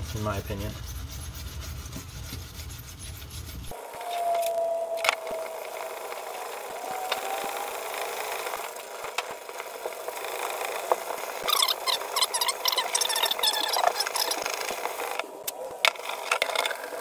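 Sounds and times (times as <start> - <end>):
scouring pad scrubbing plastic: 0.0 - 3.8, 9.4 - 15.2.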